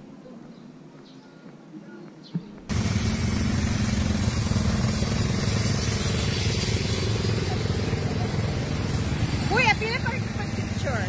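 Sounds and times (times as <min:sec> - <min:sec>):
small engine idling: 0:02.7 - 0:11.0.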